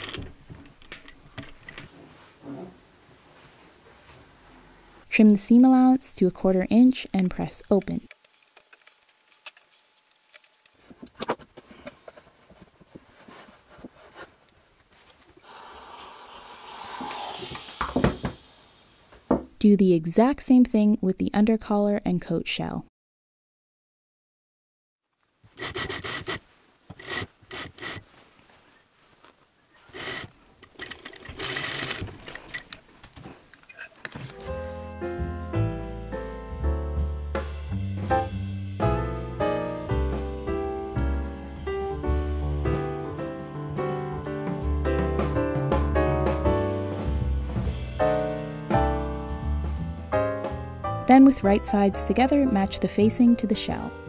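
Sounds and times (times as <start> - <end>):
cloth rustling: 8.2 - 15.4, 26.4 - 34.8
sewing machine stitching: 25.6 - 26.4, 27.0 - 28.0, 29.9 - 32.6
shears snipping cloth: 25.6 - 28.1.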